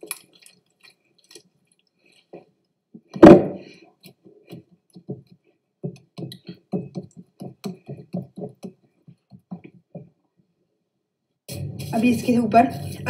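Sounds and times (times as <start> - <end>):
hands patting dough: 3.0 - 10.4.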